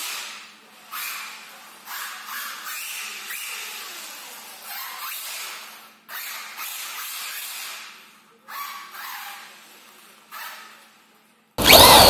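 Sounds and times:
rc car motor whine: 11.6s - 12.0s.

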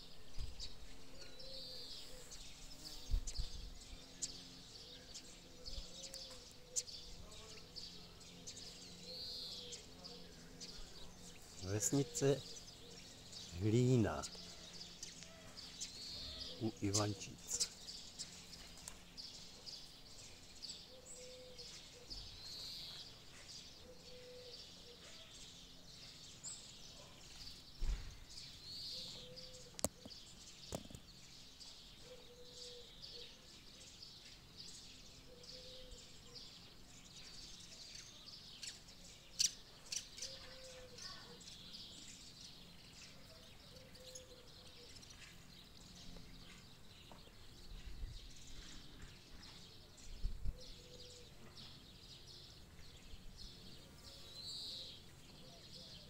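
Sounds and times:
birds chirping and singing: 0.0s - 56.0s.

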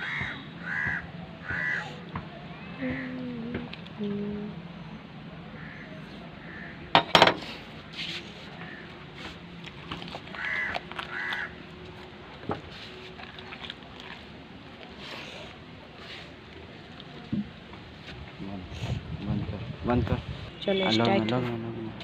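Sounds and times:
crows cawing: 0.0s - 2.0s, 5.5s - 7.0s, 8.6s - 9.0s, 10.3s - 11.6s.

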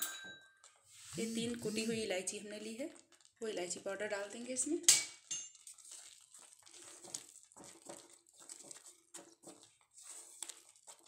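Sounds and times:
wooden spatula scraping pan: 0.8s - 2.2s, 5.8s - 11.0s.

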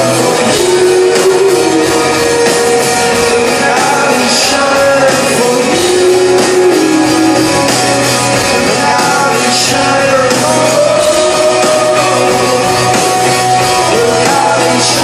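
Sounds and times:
person singing long held notes: 0.0s - 7.7s
live rock band playing: 0.0s - 15.0s.

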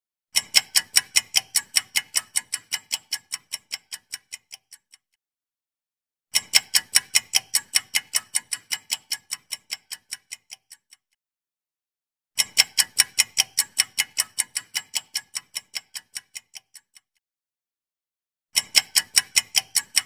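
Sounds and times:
clock ticking fast: 0.4s - 5.1s, 6.4s - 11.1s, 12.4s - 17.2s, 18.6s - 20.0s.

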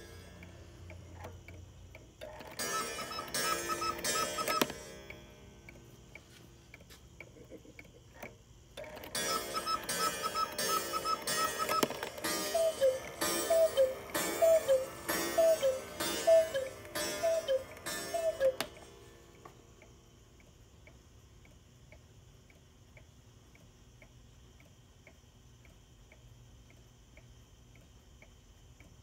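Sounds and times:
clock ticking: 0.0s - 29.0s
two-note cuckoo call: 2.6s - 4.7s, 9.2s - 18.9s
quail call whistles: 12.4s - 18.6s.

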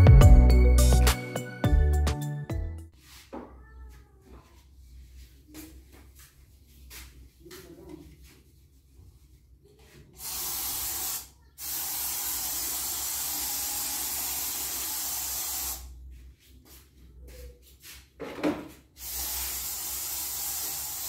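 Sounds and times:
aerosol spray can hissing: 10.2s - 15.9s, 19.0s - 21.0s.

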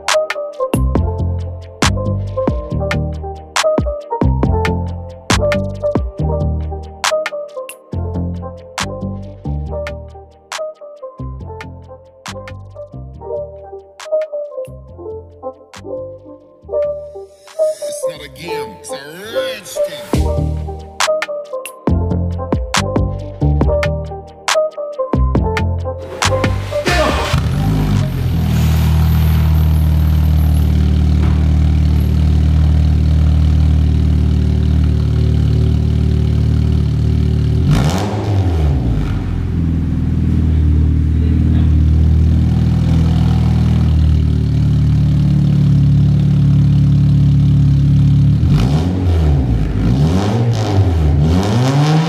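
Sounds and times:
car engine idling and revving: 26.0s - 52.0s.

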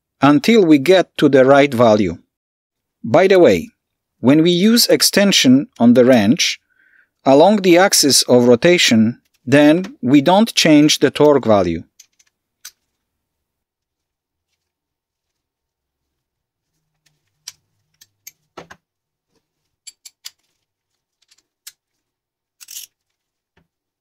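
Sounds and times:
metal tools clicking and clinking: 19.8s - 20.4s, 22.6s - 23.0s.

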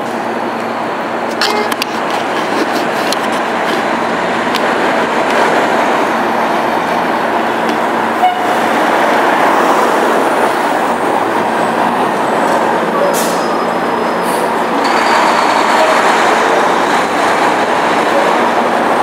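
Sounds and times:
city traffic: 0.0s - 19.0s.

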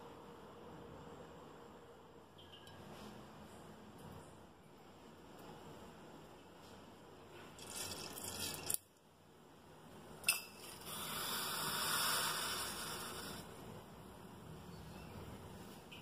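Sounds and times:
seeds sizzling in hot oil: 7.6s - 8.8s, 10.5s - 13.4s.

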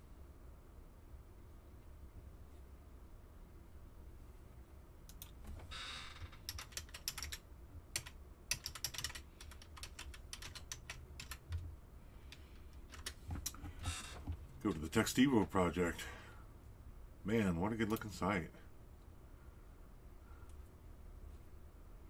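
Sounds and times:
low steady hum: 0.0s - 22.0s
keyboard keys clicking: 6.4s - 11.6s, 12.3s - 13.6s.

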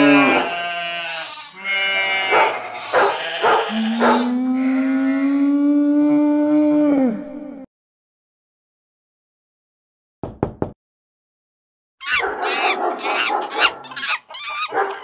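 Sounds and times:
dog howling: 0.0s - 0.6s, 2.0s - 7.2s, 12.0s - 15.0s
dog barking: 2.0s - 4.4s, 12.0s - 15.0s.

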